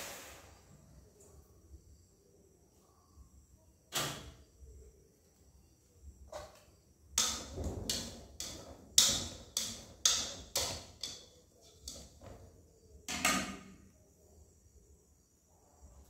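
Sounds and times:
utensils clacking on cookware: 0:07.2 - 0:12.5.

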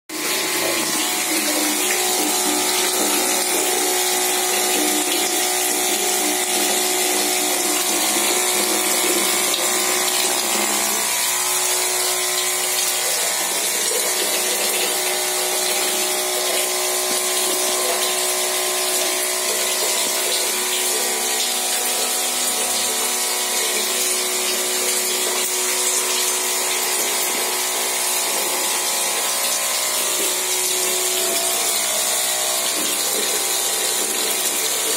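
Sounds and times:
water pouring into a tub: 0:00.1 - 0:34.9
water pump humming: 0:00.1 - 0:34.9.

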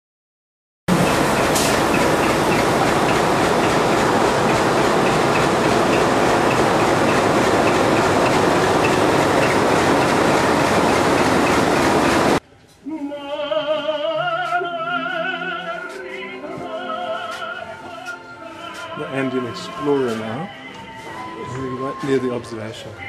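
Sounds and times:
diesel locomotive engine: 0:00.9 - 0:12.4.

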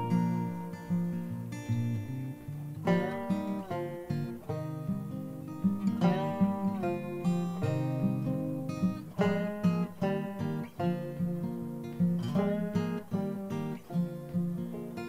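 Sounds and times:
acoustic guitar plucked notes: 0:00.0 - 0:15.0.

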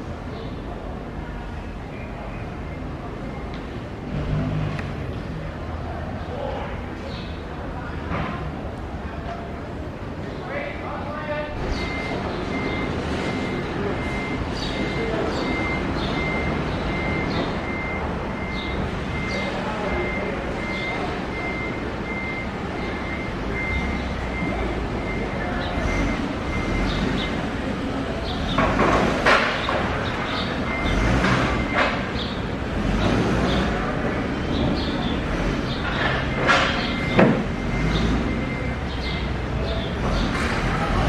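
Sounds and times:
vehicle running: 0:00.0 - 0:41.0
reversing beeper: 0:11.3 - 0:27.8, 0:29.7 - 0:33.0, 0:34.0 - 0:40.0
loud knocks and clatters: 0:28.5 - 0:30.1.

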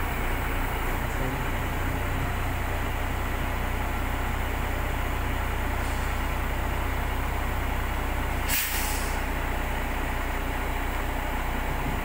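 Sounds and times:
diesel engine running under load: 0:00.0 - 0:12.0
loud hiss of air: 0:08.4 - 0:09.3.

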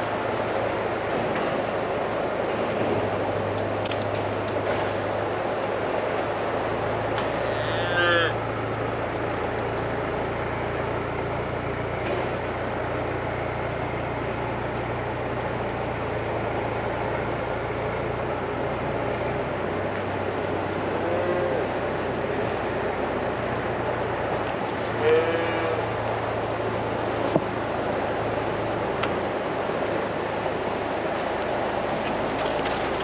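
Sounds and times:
steady low hum: 0:00.0 - 0:33.0
calf mooing: 0:07.2 - 0:08.4, 0:25.0 - 0:25.8.

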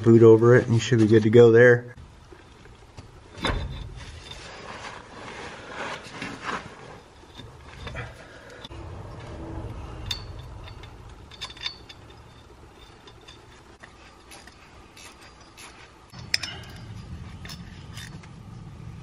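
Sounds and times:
low hum: 0:02.0 - 0:19.0
metallic clicks and clinks: 0:07.1 - 0:18.3.

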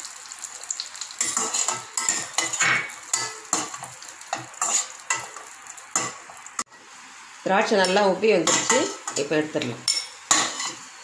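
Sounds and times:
nuts sizzling in hot oil: 0:00.0 - 0:11.0
spatula scraping and clinking pan: 0:01.2 - 0:06.2, 0:07.8 - 0:10.9.

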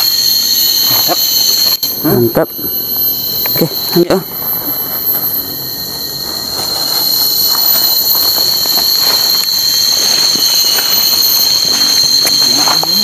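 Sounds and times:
cicadas droning: 0:00.0 - 0:13.0
leaves rustling: 0:04.4 - 0:13.0.

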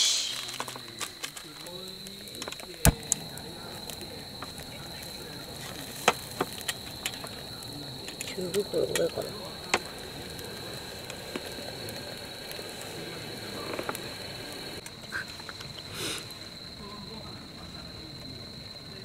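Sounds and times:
sharp clicks: 0:00.3 - 0:04.7.

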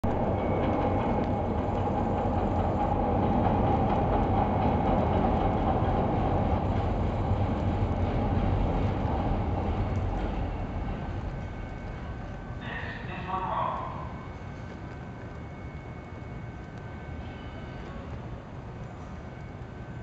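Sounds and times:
subway train wheels rumbling: 0:00.0 - 0:20.0.

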